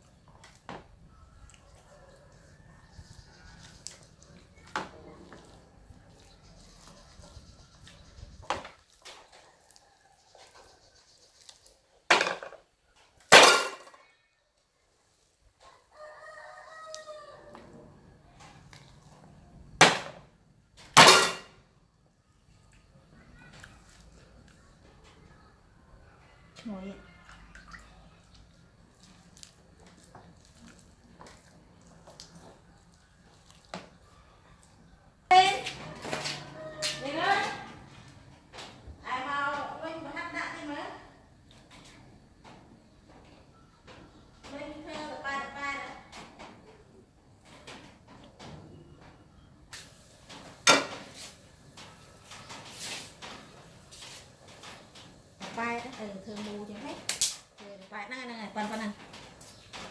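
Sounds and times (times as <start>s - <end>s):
kitchenware clattering knocks: 21.0s - 21.5s, 50.6s - 51.2s.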